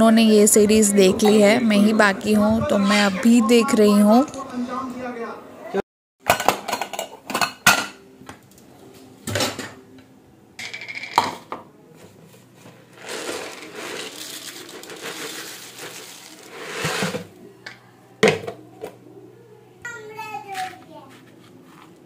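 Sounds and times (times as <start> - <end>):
dishes clinking and knocking: 1.0 - 1.6, 6.2 - 8.1, 9.2 - 9.8, 10.6 - 11.7
puffed rice pouring into bowl: 13.0 - 17.2.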